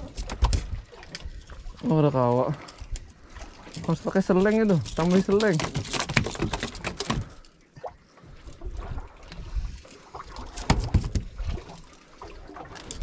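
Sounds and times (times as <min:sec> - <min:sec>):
water around a boat: 0:00.0 - 0:13.0
wind: 0:00.0 - 0:13.0
knocks and thumps: 0:10.6 - 0:11.3.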